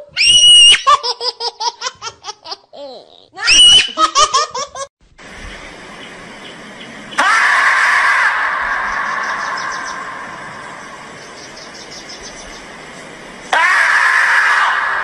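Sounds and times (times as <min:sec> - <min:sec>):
high-pitched human laughter: 0:00.6 - 0:04.9
faint background hiss: 0:09.4 - 0:13.5.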